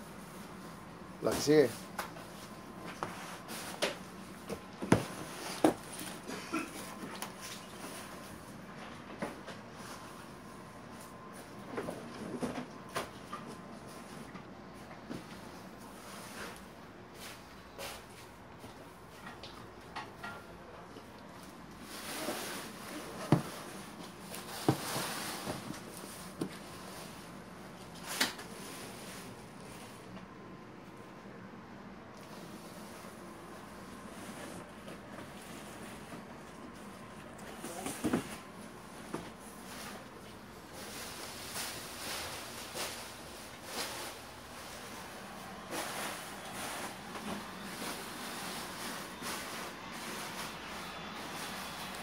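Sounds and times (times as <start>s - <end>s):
faint rustling and scuffing: 32.2s - 52.0s.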